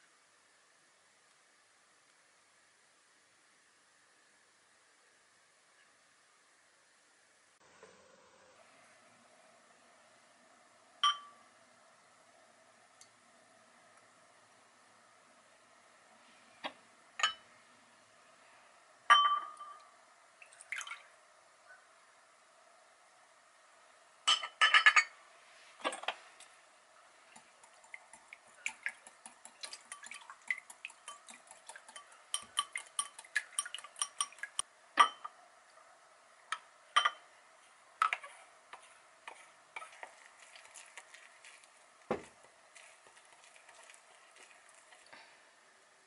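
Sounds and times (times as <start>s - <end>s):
whisk ticking against glass bowl: 27.4s - 35.2s.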